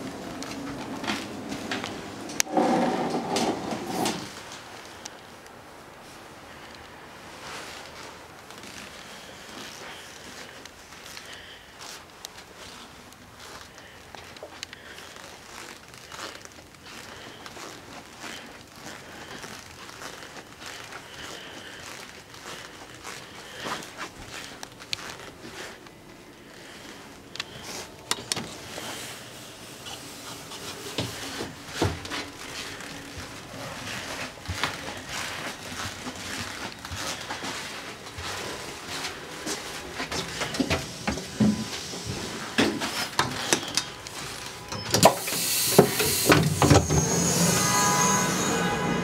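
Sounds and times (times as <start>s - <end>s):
high ringing tone: 43.6s - 49.0s
loud hiss: 45.0s - 49.0s.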